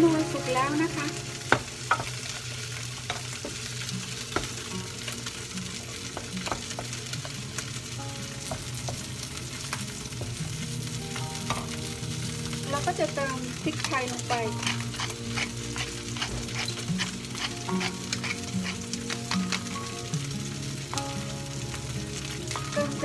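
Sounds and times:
fish sizzling in a pan: 0.0s - 23.0s
wooden spoon stirring in a saucepan: 1.5s - 10.6s, 12.8s - 19.3s.

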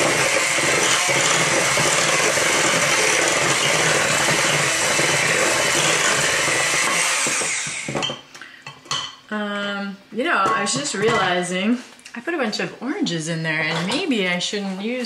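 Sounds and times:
electric hand mixer running: 0.0s - 8.1s.

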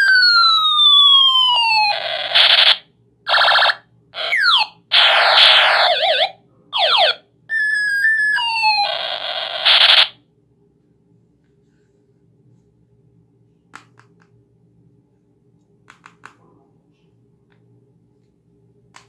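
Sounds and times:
toy ray gun electronic effects: 0.0s - 10.2s.

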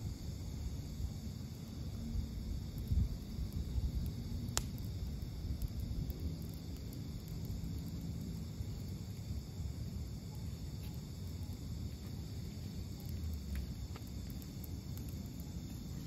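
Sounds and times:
insects chirping: 0.0s - 16.0s
faint ticks: 2.7s - 9.3s, 12.9s - 15.9s.

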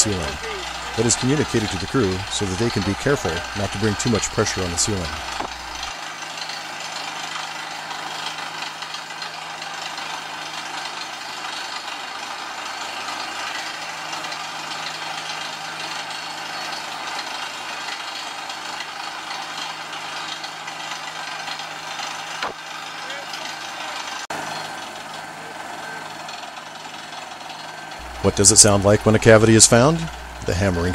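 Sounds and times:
air hammer drilling rock: 0.0s - 6.0s, 27.0s - 30.9s
drill rig engine drone: 0.0s - 30.9s.

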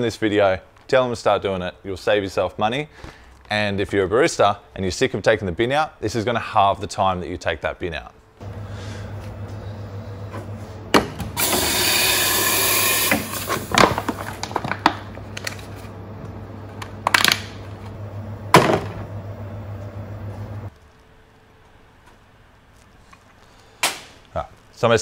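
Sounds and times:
steady low hum: 8.3s - 11.4s, 13.3s - 23.0s
steam wand hissing: 11.4s - 13.7s
plastic bottle crackling and crushing: 13.6s - 15.7s.

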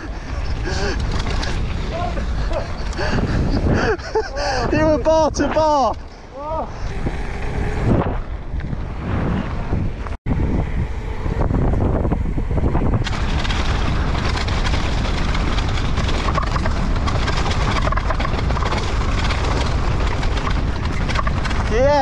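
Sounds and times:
bike rattling and knocking: 0.0s - 8.9s, 9.9s - 22.0s
wind buffeting microphone: 0.0s - 22.0s
tyres crunching over dirt and stones: 13.0s - 22.0s.

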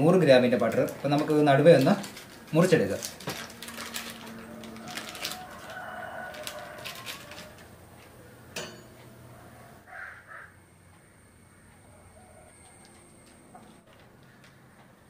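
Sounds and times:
paper wrapper crinkling: 0.0s - 7.7s
birds calling: 8.1s - 15.0s.

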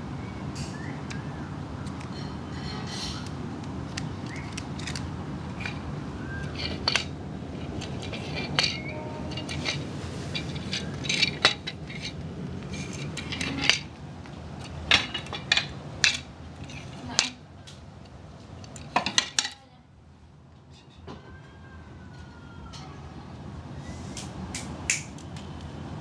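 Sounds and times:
sharp clicks of small hard objects: 3.2s - 9.8s, 24.2s - 25.5s.

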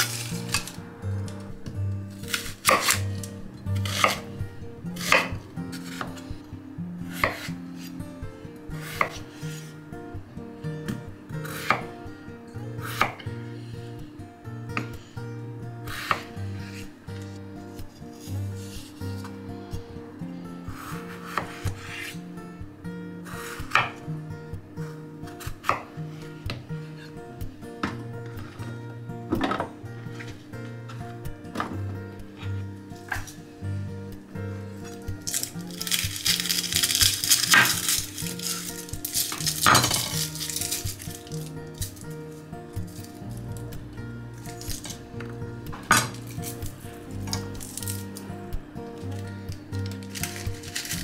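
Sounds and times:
knife cutting vegetables: 0.0s - 1.4s, 2.1s - 4.3s, 5.0s - 6.3s, 7.1s - 7.9s, 15.9s - 17.4s, 18.0s - 19.4s, 20.8s - 22.2s, 34.8s - 42.1s, 44.4s - 45.0s, 49.8s - 51.0s
soft acoustic background music: 0.0s - 51.0s.

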